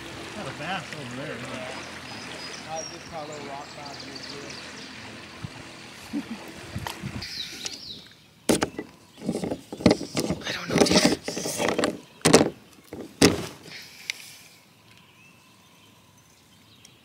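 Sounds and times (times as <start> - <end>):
plastic knocks: 8.5 - 13.5
rod scraping in plastic holder: 8.5 - 13.5.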